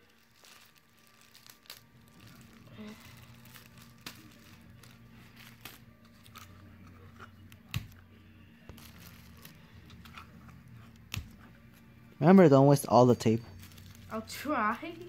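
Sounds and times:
wrapping paper crinkling: 0.0s - 7.9s, 8.6s - 11.8s, 13.4s - 15.0s.

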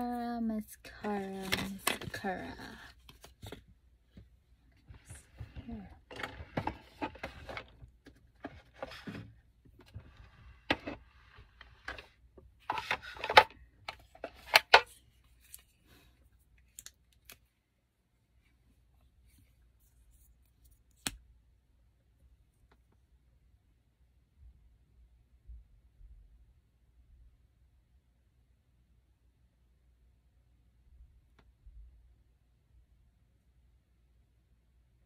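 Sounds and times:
plastic containers clicking and scraping: 4.9s - 14.9s.

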